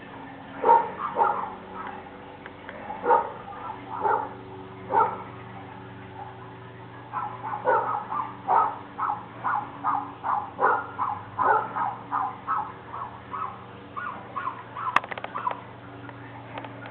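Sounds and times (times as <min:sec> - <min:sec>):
dog barking: 0:00.6 - 0:02.0, 0:02.8 - 0:05.3, 0:07.1 - 0:15.6.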